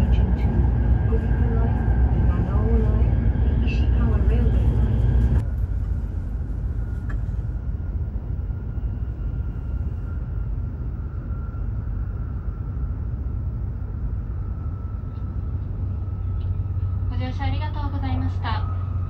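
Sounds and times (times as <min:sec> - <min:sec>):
faint steady whine: 0:00.0 - 0:19.0
train cabin low rumble: 0:00.0 - 0:19.0.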